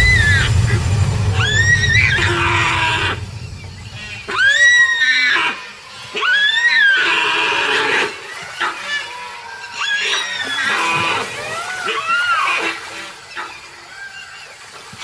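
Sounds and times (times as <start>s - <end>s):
deer screaming: 4.4s - 12.9s.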